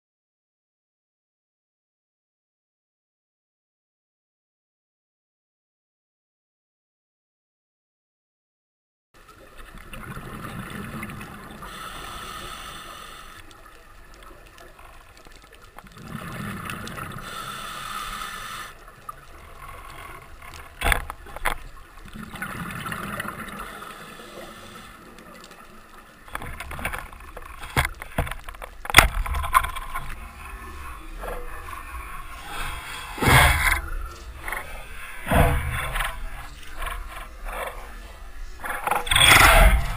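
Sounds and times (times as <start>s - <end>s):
bubbling: 9.4s - 39.9s
diver breathing through regulator: 11.5s - 13.5s, 16.2s - 18.9s, 23.2s - 25.2s, 29.9s - 38.0s.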